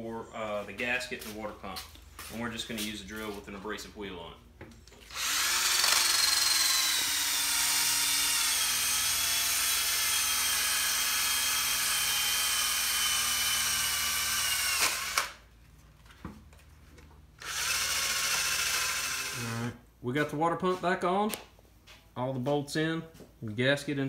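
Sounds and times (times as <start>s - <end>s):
electric drill whining: 5.0s - 15.4s, 17.4s - 19.7s.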